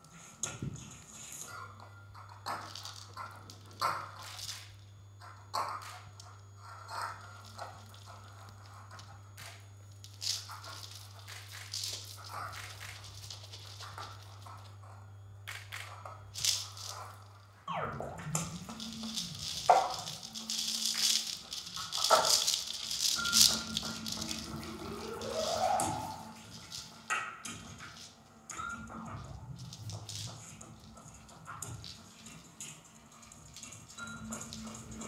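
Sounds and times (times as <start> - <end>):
shell rattle shaking: 18.6 - 25.6
falling swoops: 23.2 - 27.1.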